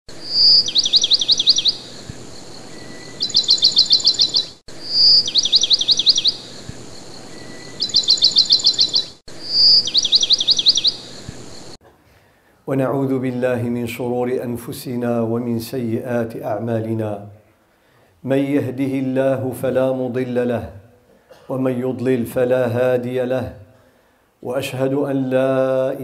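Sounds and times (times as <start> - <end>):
songbird singing: 0.1 - 11.8.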